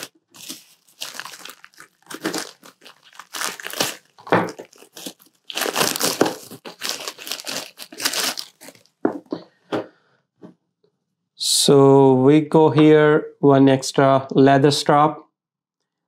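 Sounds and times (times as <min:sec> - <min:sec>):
knife slitting plastic bag: 0:00.0 - 0:08.9
plastic bag rustling and tearing: 0:00.0 - 0:09.0.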